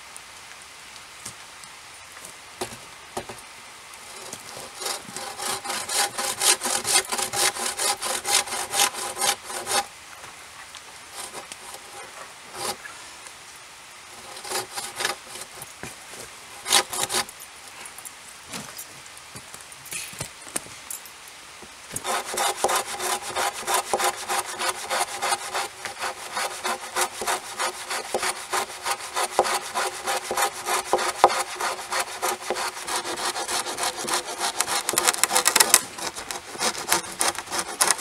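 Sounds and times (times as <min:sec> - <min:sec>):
bow saw rasping through log: 0:04.0 - 0:09.9, 0:11.1 - 0:12.9, 0:14.1 - 0:17.3, 0:22.0 - 0:38.0.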